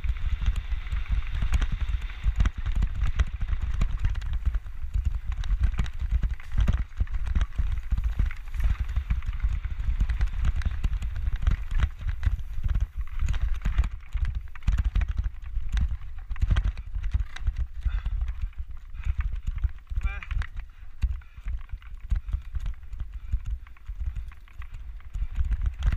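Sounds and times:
mountain bike rattling over rocks: 0.0 - 25.9
wind buffeting microphone: 0.0 - 25.9.

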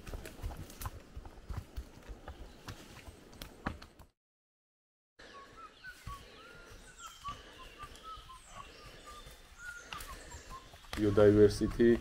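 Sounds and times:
birds chirping: 5.2 - 12.0.

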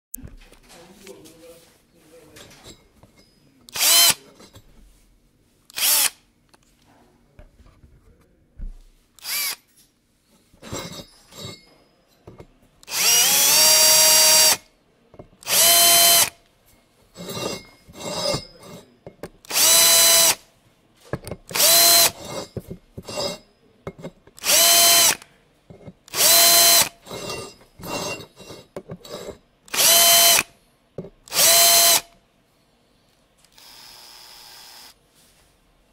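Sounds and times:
electric screwdriver whine: 3.8 - 4.2, 5.7 - 6.2, 9.2 - 9.6, 12.9 - 14.6, 15.4 - 16.4, 19.5 - 20.4, 21.5 - 22.2, 24.4 - 25.2, 26.1 - 27.0, 29.7 - 30.5, 31.3 - 32.1, 33.5 - 35.0.

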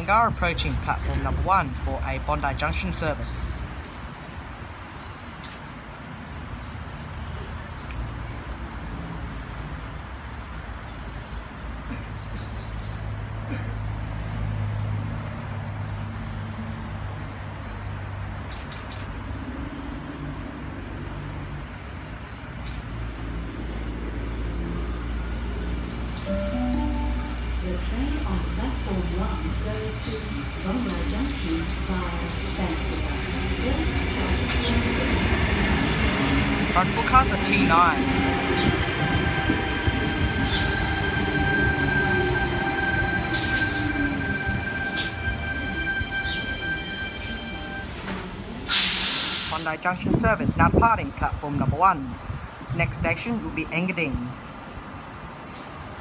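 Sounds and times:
electric train rumbling: 0.0 - 6.8, 19.4 - 51.5
low tone falling in pitch: 26.3 - 28.0
short hisses of air: 48.7 - 49.6.

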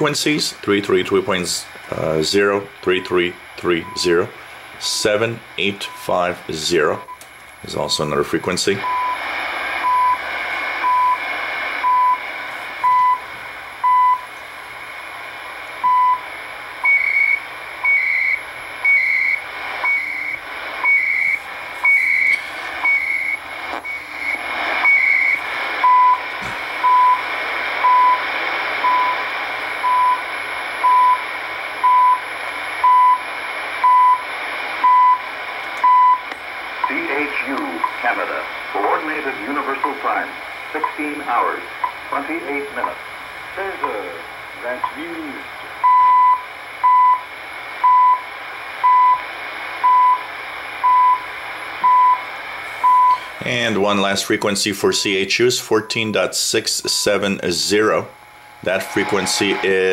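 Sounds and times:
radio static: 0.0 - 59.9
time signal beeps: 12.8 - 13.2, 13.8 - 14.2, 15.8 - 16.2, 16.8 - 27.2, 27.8 - 28.2, 28.8 - 29.2, 29.8 - 30.2, 30.8 - 31.2, 31.8 - 32.2, 32.8 - 33.2, 33.8 - 34.2, 35.8 - 36.2, 45.8 - 47.2, 47.8 - 48.2, 48.8 - 49.2, 49.8 - 52.2, 52.8 - 53.2, 58.6 - 59.9
chirping time-code data bursts: 16.8 - 27.2.

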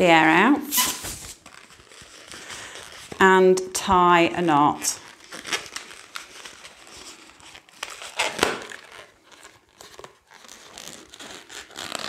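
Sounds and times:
balloon rubbing and squeaking: 0.6 - 3.2, 4.7 - 12.0.

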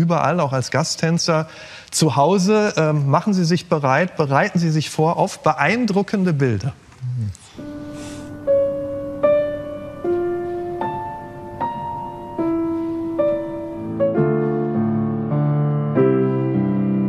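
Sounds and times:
solo piano music: 7.6 - 17.0.

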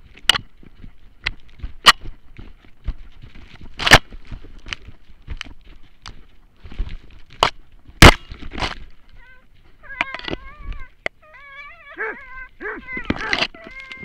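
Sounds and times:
knocks and scuffs on camera: 0.0 - 8.9
dog whining: 9.1 - 14.0.

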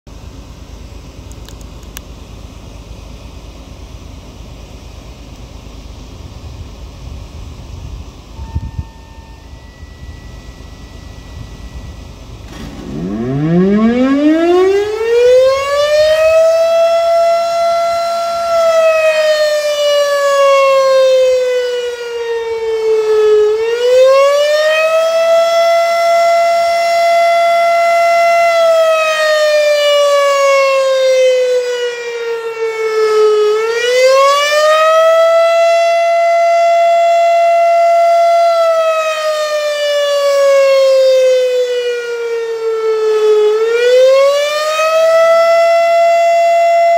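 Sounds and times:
rotating siren wailing: 8.2 - 46.9.

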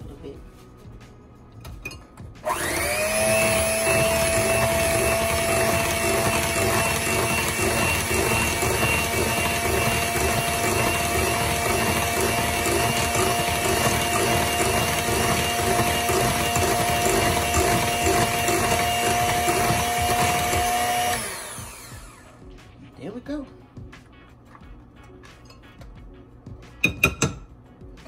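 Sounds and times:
electric mixer whirring: 2.4 - 22.4.

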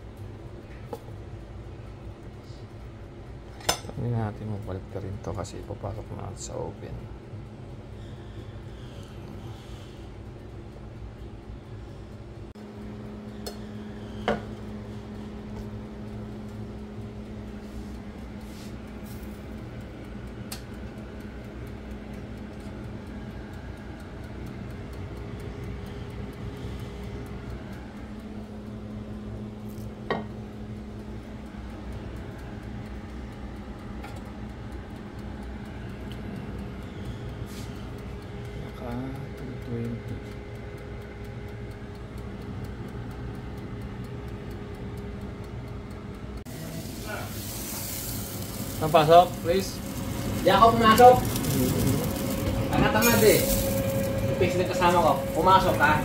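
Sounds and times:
oven fan humming: 0.0 - 56.0.

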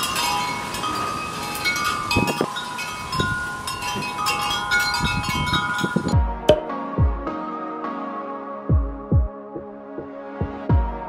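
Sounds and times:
wind chimes ringing: 0.0 - 6.7.

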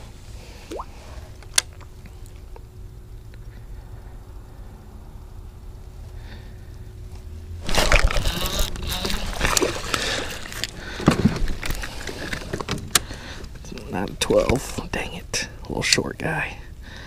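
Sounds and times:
low steady rumble: 0.0 - 17.0
fish splashing: 0.7 - 1.0, 7.6 - 10.7.

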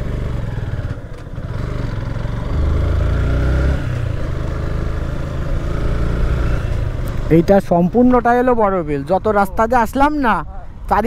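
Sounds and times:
motorcycle engine running: 0.0 - 8.0.

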